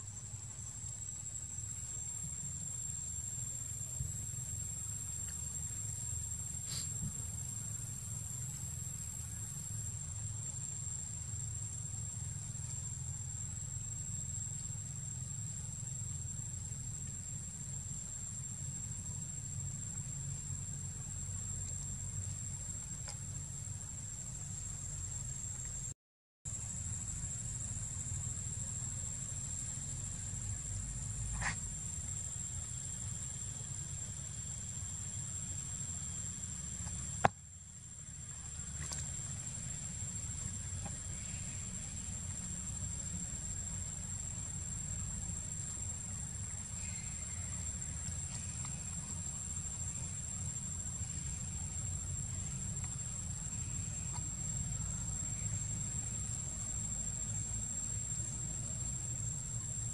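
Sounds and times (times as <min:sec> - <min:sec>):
insects droning: 0:00.0 - 0:59.9
low steady rumble: 0:26.5 - 0:59.9.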